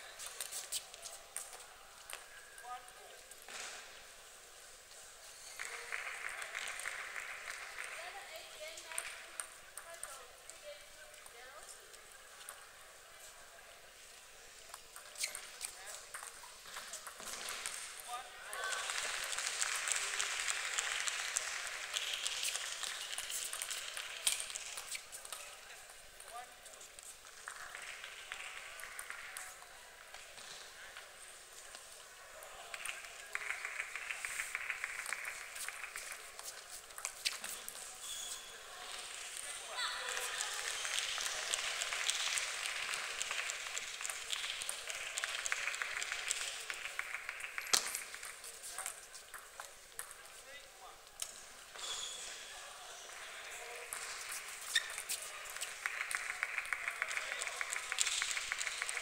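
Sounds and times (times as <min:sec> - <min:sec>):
spectators applauding: 0:05.5 - 0:08.4, 0:18.6 - 0:24.7, 0:27.4 - 0:29.5, 0:32.7 - 0:36.6, 0:39.9 - 0:48.8, 0:53.0 - 0:59.0.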